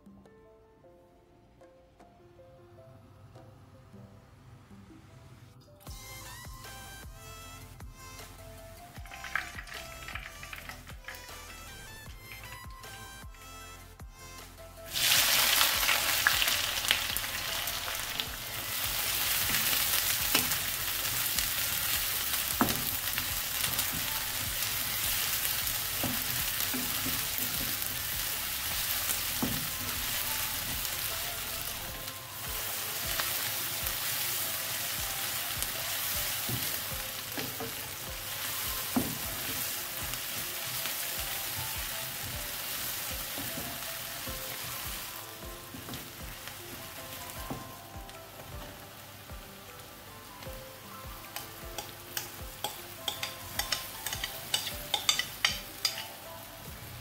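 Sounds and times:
onions sizzling in hot oil: 0:14.9 - 0:57.0
spatula knocking on pan: 0:51.4 - 0:56.0.

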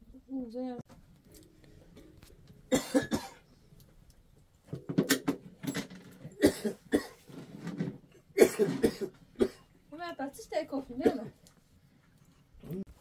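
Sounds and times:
person coughing: 0:02.7 - 0:03.4, 0:06.4 - 0:07.2, 0:08.4 - 0:09.7, 0:11.0 - 0:11.3.

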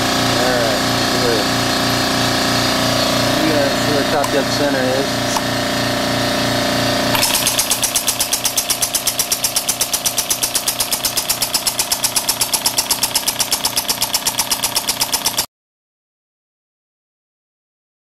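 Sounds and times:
valve clicks: 0:04.1 - 0:04.4, 0:07.1 - 0:15.4.

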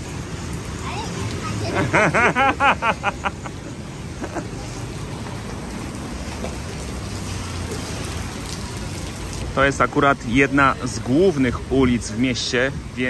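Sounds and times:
traffic on flooded street: 0:00.0 - 0:13.0
water on a flooded street: 0:00.0 - 0:13.0
woman laughing: 0:01.7 - 0:04.8.

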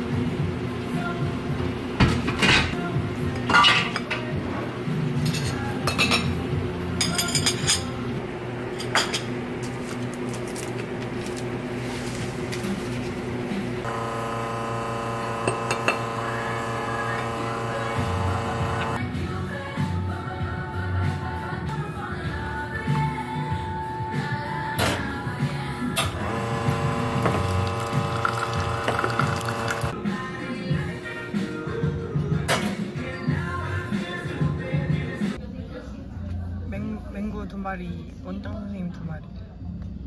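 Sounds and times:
tableware clinking: 0:07.0 - 0:07.9.

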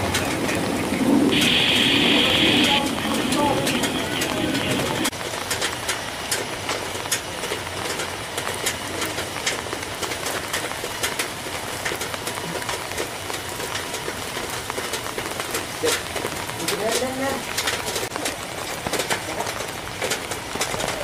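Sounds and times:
jet engine noise: 0:00.0 - 0:13.0.

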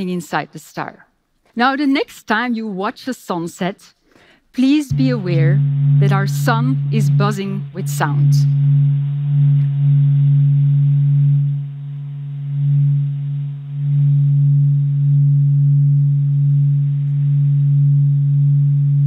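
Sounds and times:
low hum of held tones: 0:04.9 - 0:19.0.

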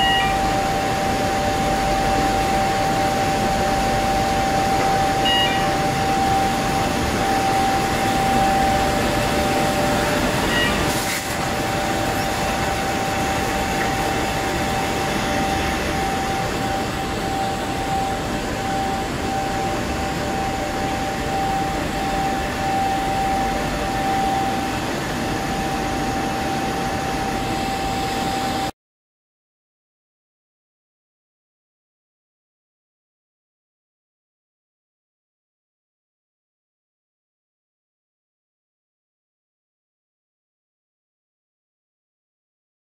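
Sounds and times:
constant high whine: 0:00.0 - 0:28.7
printing press hum: 0:00.0 - 0:28.7.

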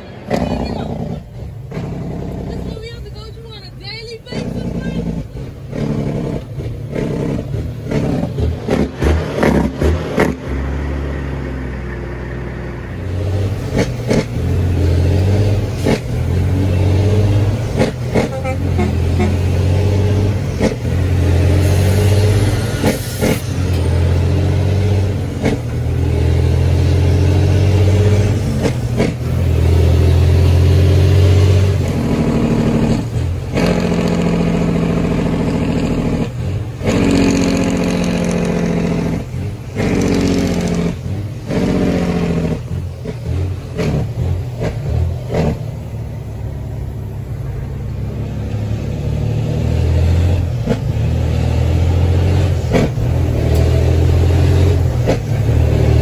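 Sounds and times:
truck diesel engine pulling: 0:00.0 - 0:56.0.

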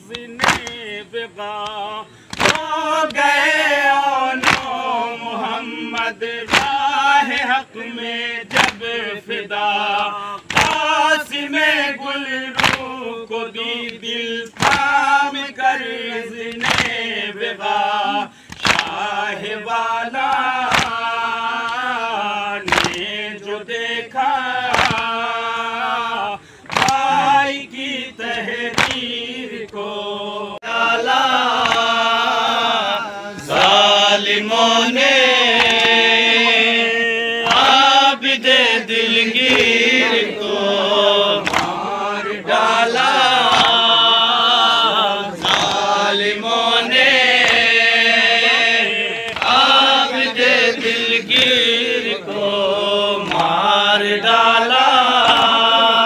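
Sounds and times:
men chanting together: 0:00.0 - 0:56.0.

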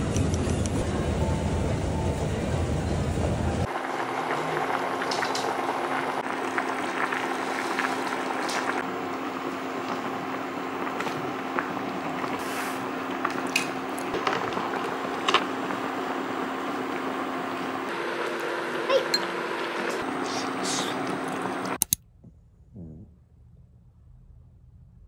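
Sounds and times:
broth bubbling: 0:03.6 - 0:17.8.

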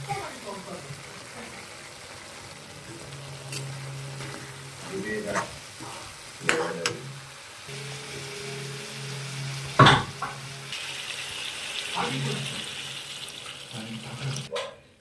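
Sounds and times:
curry frying in a pan: 0:00.0 - 0:14.5
sizzling hiss: 0:00.0 - 0:14.5
steel spatula knocking on pan: 0:09.8 - 0:10.4.

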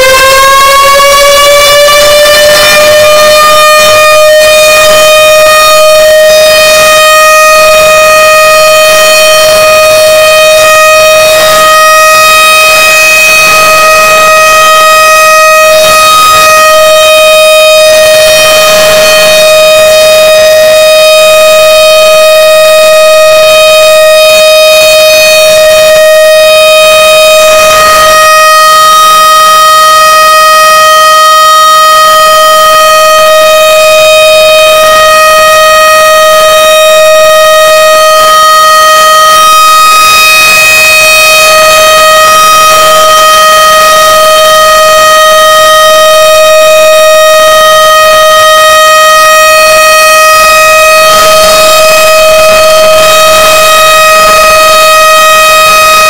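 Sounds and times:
distorted warning siren wailing: 0:00.0 - 0:56.0.

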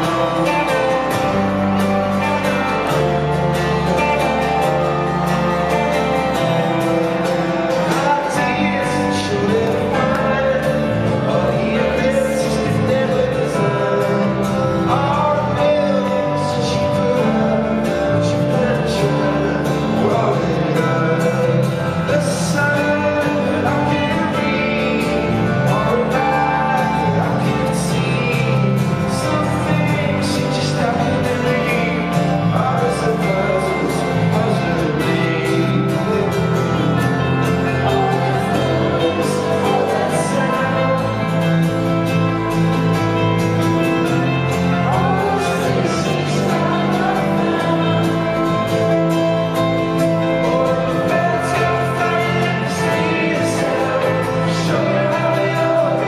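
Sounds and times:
guitar: 0:00.0 - 0:56.0
man singing lead: 0:00.0 - 0:56.0.

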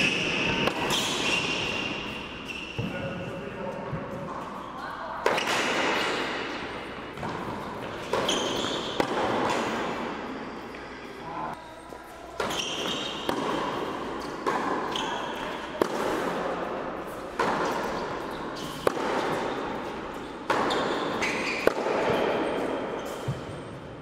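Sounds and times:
racket striking tennis ball: 0:00.0 - 0:02.2, 0:05.2 - 0:10.2, 0:12.4 - 0:23.7
shoes squeaking on court: 0:00.0 - 0:11.0, 0:11.6 - 0:15.8, 0:17.0 - 0:24.0
tennis ball bouncing: 0:06.6 - 0:10.1, 0:12.4 - 0:16.4, 0:17.1 - 0:23.8.

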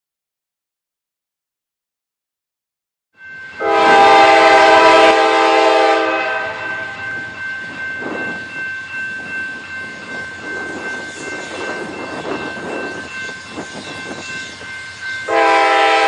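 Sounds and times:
locomotive and train running: 0:03.2 - 0:16.0
locomotive air horn: 0:03.6 - 0:07.0, 0:15.3 - 0:16.0.

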